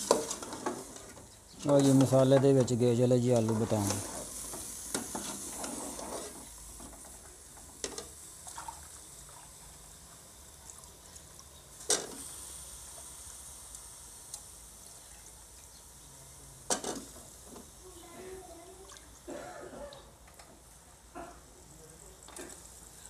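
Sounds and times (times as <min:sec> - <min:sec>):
vegetables sizzling in a pot: 0:00.0 - 0:19.4, 0:20.0 - 0:23.0.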